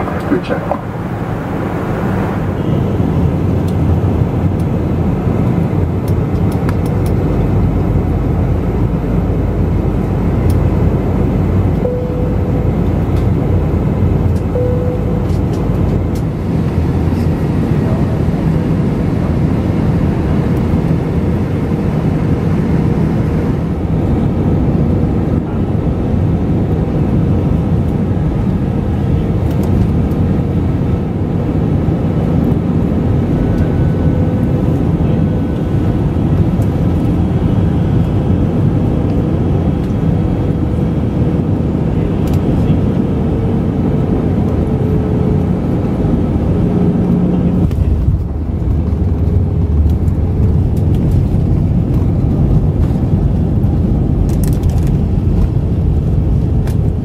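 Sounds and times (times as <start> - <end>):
air rushing over fuselage: 0.0 - 4.5
jet engines rumbling: 0.0 - 57.0.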